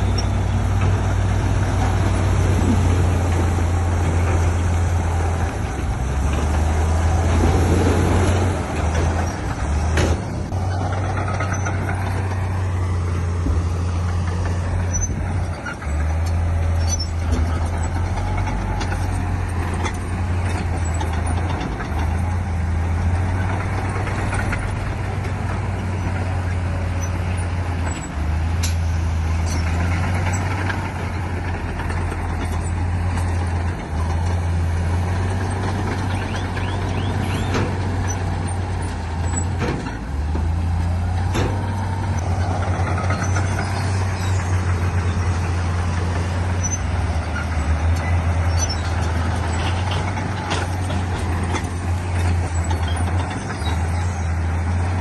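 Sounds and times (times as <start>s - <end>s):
heavy diesel machinery droning: 0.0s - 55.0s
sharp metal clanks and knocks: 8.8s - 12.6s, 23.3s - 34.6s, 35.4s - 54.3s.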